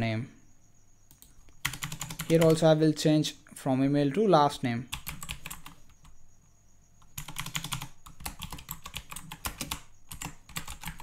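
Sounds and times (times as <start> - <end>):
typing on computer keyboard: 1.1 - 2.7, 4.9 - 6.2, 7.1 - 11.0.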